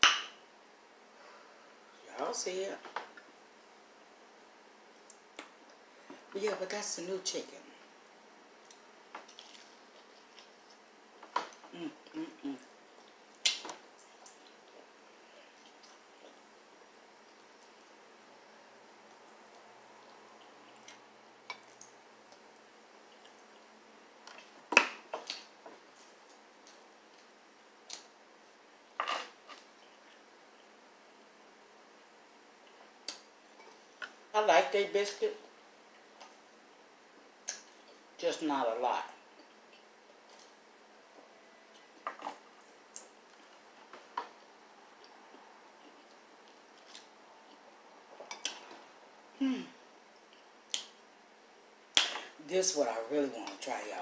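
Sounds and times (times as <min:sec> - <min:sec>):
chewing fried chicken crackles: 0:08.6 - 0:10.9.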